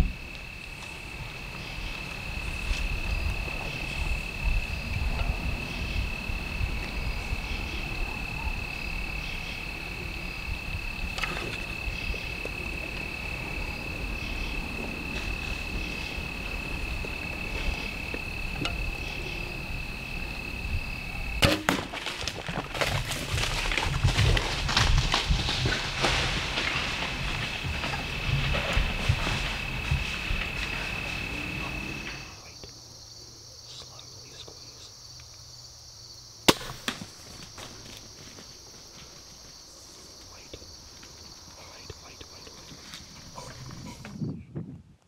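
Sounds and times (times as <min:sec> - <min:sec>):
low wind rumble: 0:00.0 - 0:21.4, 0:22.4 - 0:32.5, 0:40.8 - 0:45.0
arrow hitting animal crack: 0:21.4 - 0:22.3, 0:36.5 - 0:37.1
deer crashing through dry leaves: 0:21.5 - 0:31.2.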